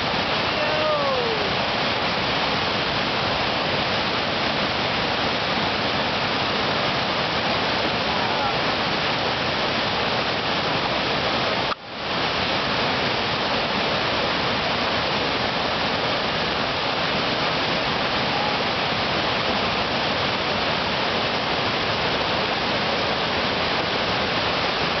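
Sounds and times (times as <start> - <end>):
river rapids roaring: 0.0 - 25.0.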